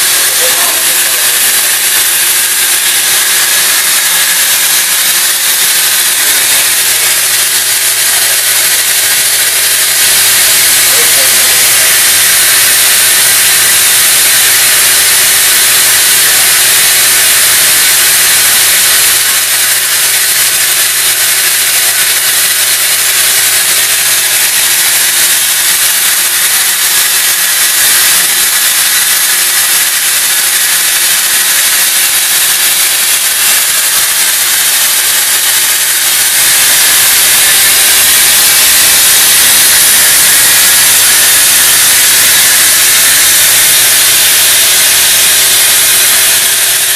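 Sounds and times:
loud steady hiss: 0.0 - 46.9.

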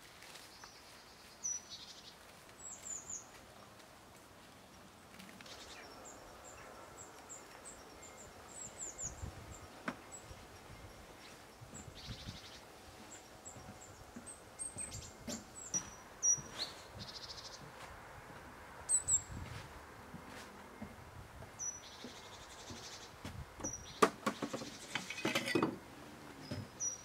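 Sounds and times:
plants rustling: 0.0 - 5.8
small birds chirping: 0.2 - 3.8, 4.4 - 17.9, 18.8 - 19.5, 20.7 - 25.2, 26.3 - 27.0.

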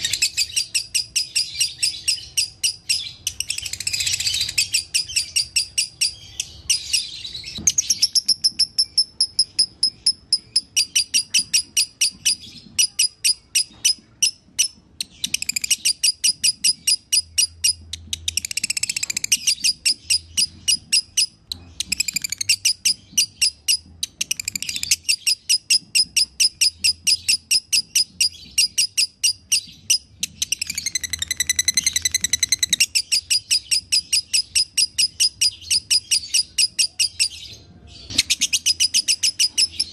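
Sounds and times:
lovebird chirping: 0.0 - 39.9.

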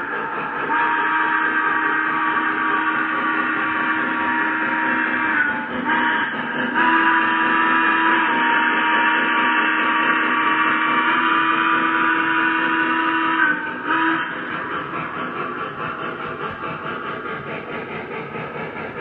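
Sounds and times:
model train steam whistle: 0.0 - 14.5
freight cars rolling on track: 0.0 - 19.0.

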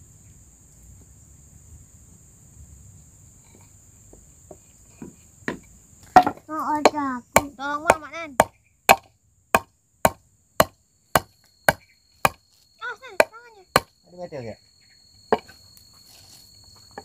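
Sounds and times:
hammer striking nail into wood: 6.2 - 12.4, 13.2 - 13.9.

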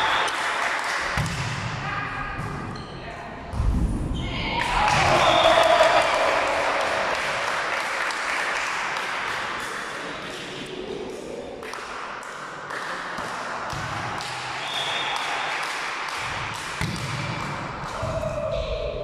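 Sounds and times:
scattered clapping: 0.0 - 1.2, 4.9 - 10.7, 14.1 - 16.8.

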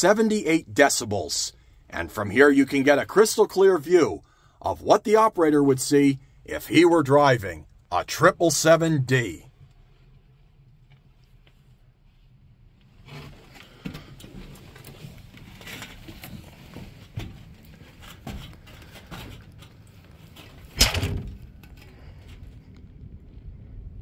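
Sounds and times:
footsteps: 13.0 - 22.7
loud thump: 20.8 - 21.6.

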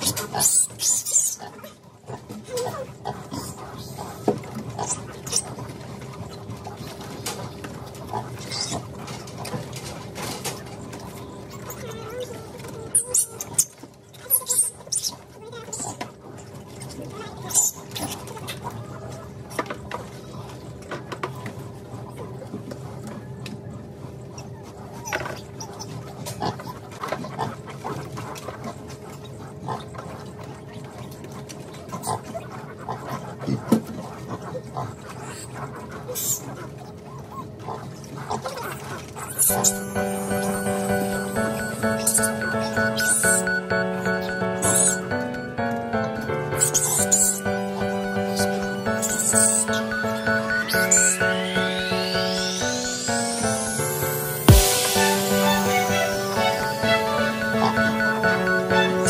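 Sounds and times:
piglets squealing: 0.0 - 1.7, 38.3 - 45.1, 46.5 - 59.0
pigs squealing and grunting: 0.0 - 5.7, 8.1 - 9.0, 31.9 - 39.7.

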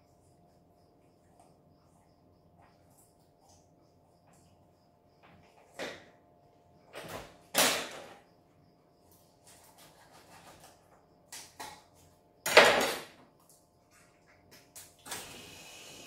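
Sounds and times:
knife cutting raw chicken: 9.4 - 10.8.

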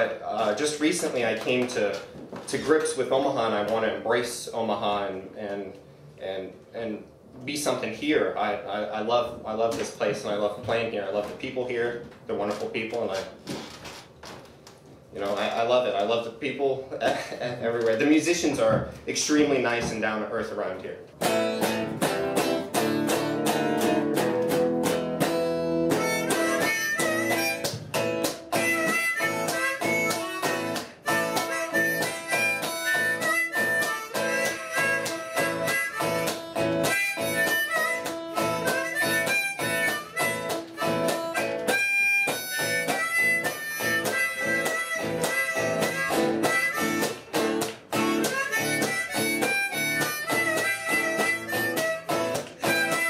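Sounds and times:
strummed electric guitar: 21.2 - 53.0
harmonica playing: 24.8 - 53.0.

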